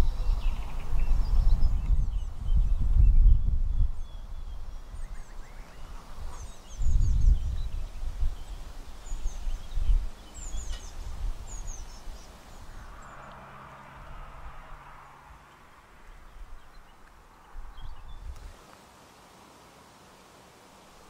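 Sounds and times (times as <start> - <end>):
birds chirping: 0.0 - 18.6
low rumble: 12.6 - 16.8.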